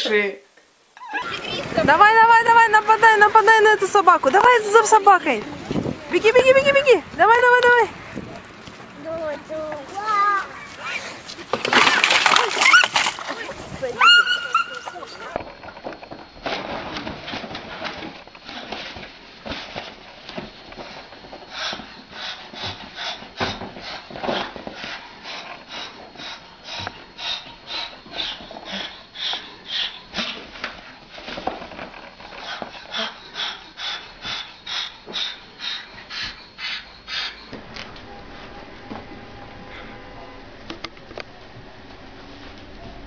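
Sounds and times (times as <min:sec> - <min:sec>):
cockatoo harsh calls: 0:13.9 - 0:15.4.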